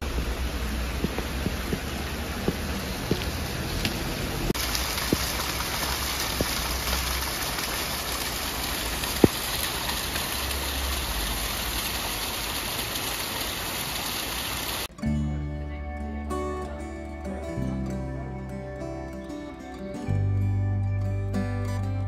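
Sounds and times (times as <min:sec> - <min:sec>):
rain falling: 0:00.0 - 0:14.9
river running over stones: 0:00.0 - 0:14.9.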